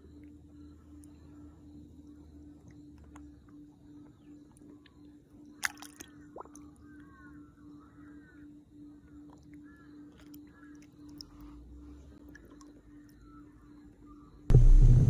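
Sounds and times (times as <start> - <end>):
faint pulsing hum: 0.0 - 9.9, 10.5 - 15.0
water sloshing and dripping: 5.5 - 6.8.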